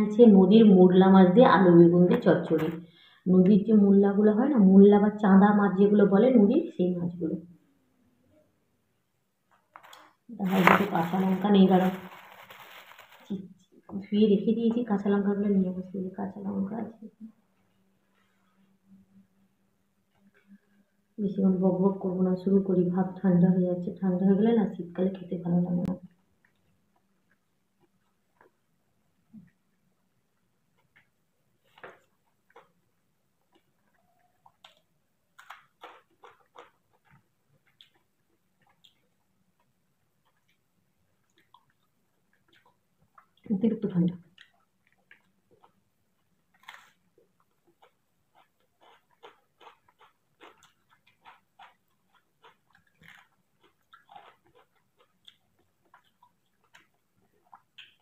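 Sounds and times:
wet chewing smacks: 30.7 - 43.5, 44.2 - 58.0.

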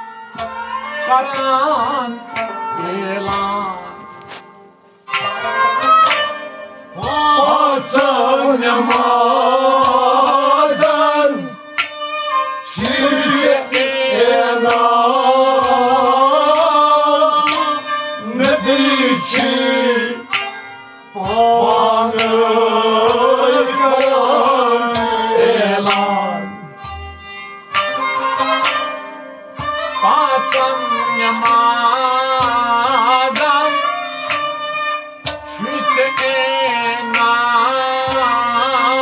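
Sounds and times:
rabab playing: 0.0 - 39.0
man singing: 1.1 - 4.3, 6.9 - 11.6, 12.6 - 20.3, 21.1 - 26.8, 30.0 - 34.2, 35.4 - 39.0
drum strokes: 3.2 - 33.6.

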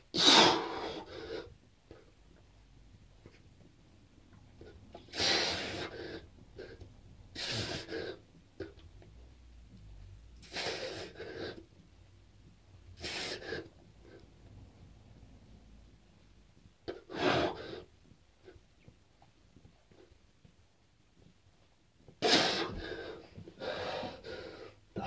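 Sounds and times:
man breathing heavily: 22.2 - 25.0.

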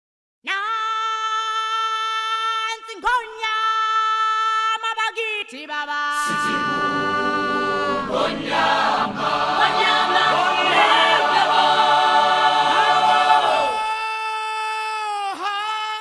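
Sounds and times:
men chanting together: 6.3 - 13.8.

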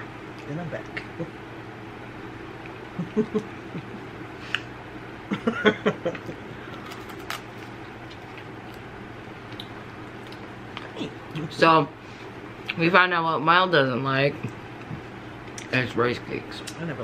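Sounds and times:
low room hum: 0.0 - 17.0
stifled hums or laughs: 2.9 - 4.2, 5.2 - 6.6.

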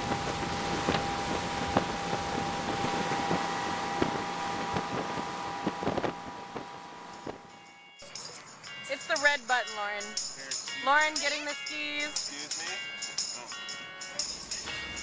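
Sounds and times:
wind buffeting microphone: 0.0 - 7.6
motorboat engine and wake: 0.0 - 8.8.

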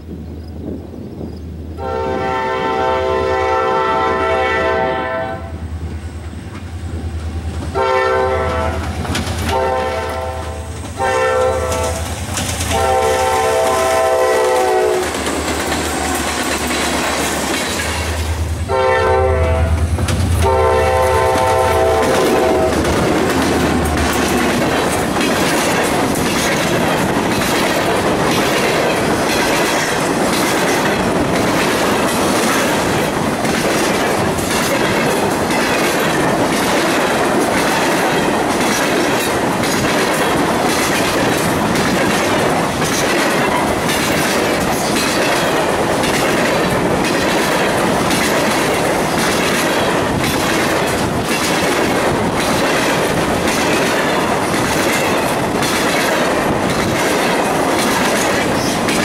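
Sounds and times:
diesel locomotive rumble: 0.1 - 59.0
locomotive horn blasts: 1.8 - 5.6, 7.7 - 8.9, 9.5 - 12.1, 12.7 - 15.1, 18.7 - 22.8
train wheels clattering on rail joints: 5.8 - 59.0.

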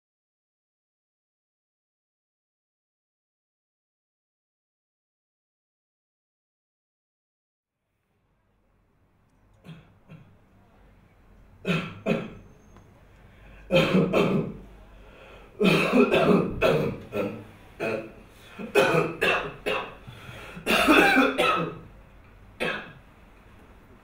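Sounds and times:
man clearing his throat: 11.6 - 12.4, 13.7 - 14.6, 15.6 - 20.0, 20.6 - 21.9
man coughing: 11.7 - 12.4, 13.7 - 14.6, 15.6 - 20.0, 20.6 - 21.8, 22.6 - 23.0.

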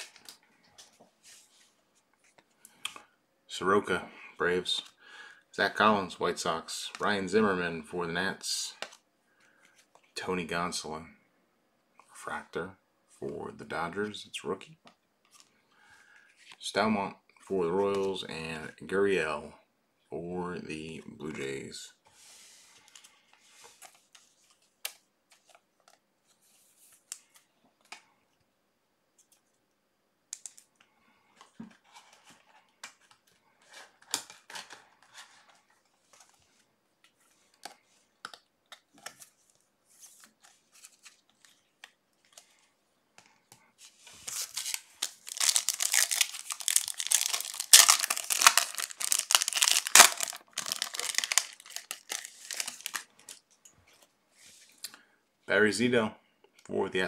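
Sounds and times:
wrapper crinkling and tearing: 44.2 - 53.5.

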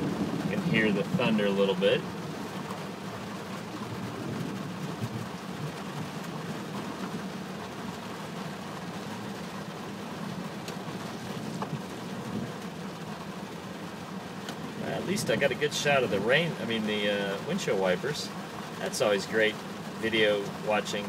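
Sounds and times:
steady low rumble: 0.0 - 7.5, 10.1 - 12.8
windshield wiper sweeping: 0.0 - 16.8
rain on car windshield and roof: 0.0 - 21.0
faint wiper click: 10.6 - 12.7, 14.4 - 14.7.

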